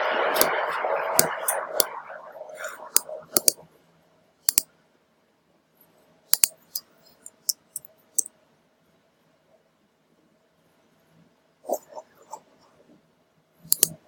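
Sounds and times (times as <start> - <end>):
faint steady hum: 0.0 - 14.0
mouse and keyboard clicks: 2.7 - 3.6, 6.4 - 7.9, 13.7 - 14.0.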